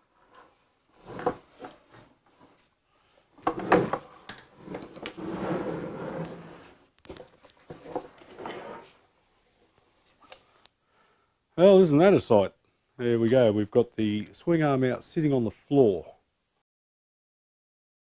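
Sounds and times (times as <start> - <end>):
dragging scrape: 3.5 - 6.8, 7.7 - 9.0.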